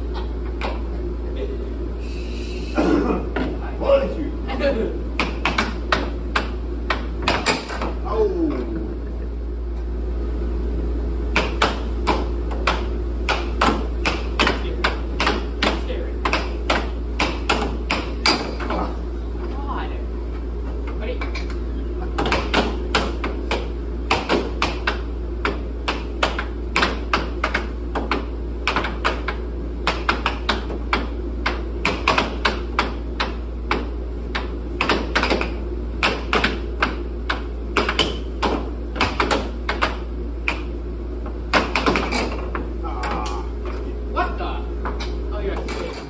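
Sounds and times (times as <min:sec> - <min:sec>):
air blower humming: 0:00.0 - 0:46.0
air hockey puck clacking: 0:05.2 - 0:07.9, 0:11.3 - 0:18.8, 0:22.2 - 0:40.7, 0:41.5 - 0:43.3.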